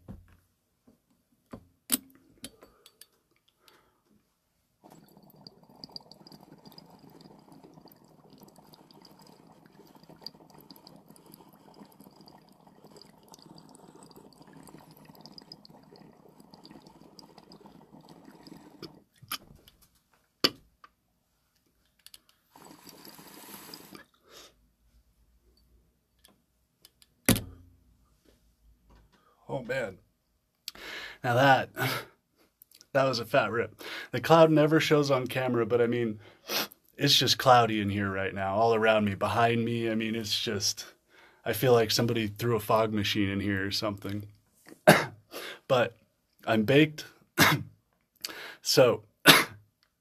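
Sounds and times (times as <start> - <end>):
water bubbling in glass pipe: 4.8 - 19.4, 22.5 - 24.0
breathy bursts: 30.7 - 32.2, 45.3 - 45.7, 48.2 - 48.7.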